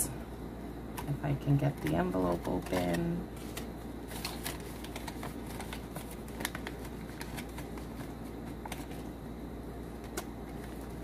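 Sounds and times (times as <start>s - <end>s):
plastic envelopes rustling: 1.5s - 9.1s, 10.0s - 11.0s.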